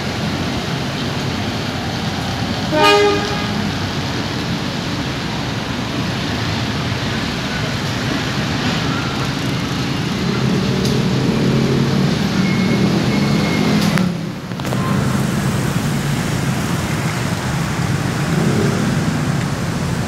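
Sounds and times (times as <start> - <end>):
road traffic passing: 0.0 - 20.0
short horn toot: 2.7 - 3.6.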